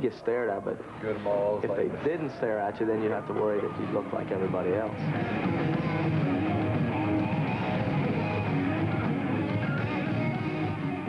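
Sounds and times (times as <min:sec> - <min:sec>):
electric guitar: 0:04.1 - 0:11.0
heavy metal band playing live: 0:05.0 - 0:11.0.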